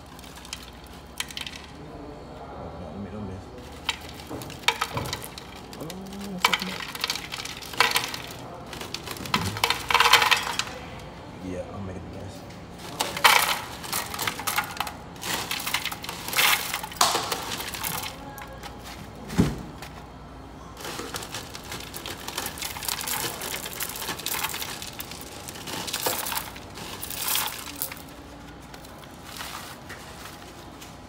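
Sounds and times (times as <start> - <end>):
cereal flakes clattering into bowl: 0.0 - 1.8, 3.6 - 10.8, 12.8 - 19.0, 20.8 - 30.4.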